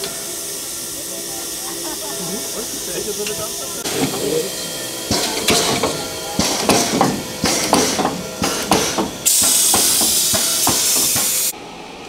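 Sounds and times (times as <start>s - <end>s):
loud hiss of steam: 0.0s - 11.6s
steam locomotive knocking beats: 0.0s - 11.6s.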